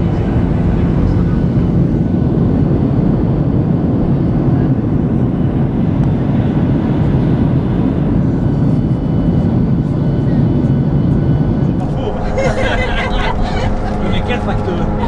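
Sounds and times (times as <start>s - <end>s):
vehicle engine rumbling: 11.2s - 15.0s.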